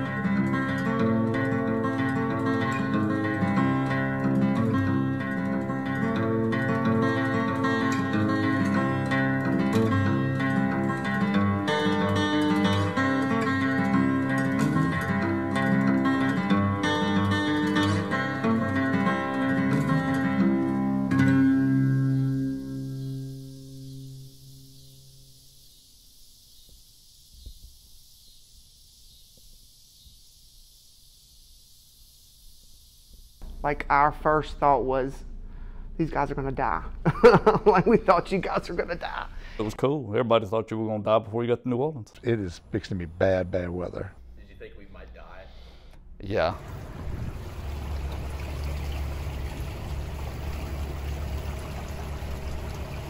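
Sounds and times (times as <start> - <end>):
faint high hiss: 20.4 - 35.8, 43.7 - 53.0
boat motor hum: 46.5 - 53.0
water rushing along hull: 46.5 - 53.0.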